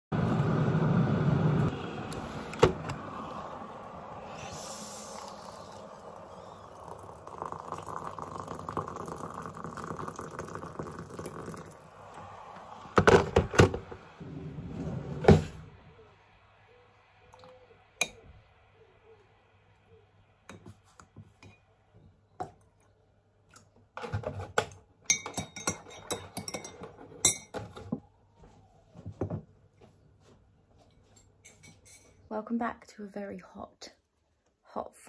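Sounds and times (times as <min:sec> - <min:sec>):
water pouring into mug: 0:03.2 - 0:13.0.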